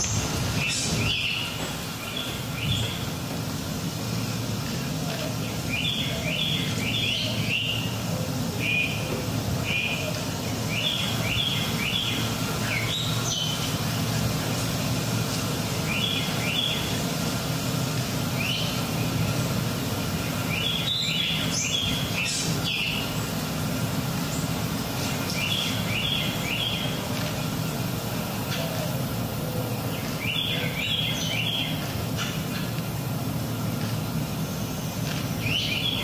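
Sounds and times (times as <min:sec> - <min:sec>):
bird chirping: 0:00.0 - 0:03.1, 0:04.6 - 0:14.4, 0:15.7 - 0:17.2, 0:18.3 - 0:19.5, 0:20.1 - 0:23.5, 0:24.2 - 0:29.0, 0:29.6 - 0:32.4, 0:34.7 - 0:36.0
background hiss: 0:00.0 - 0:36.0.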